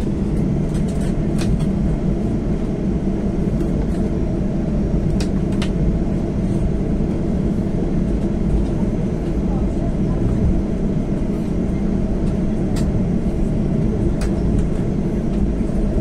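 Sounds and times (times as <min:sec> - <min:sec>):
jet engine low rumble: 0:00.0 - 0:16.0.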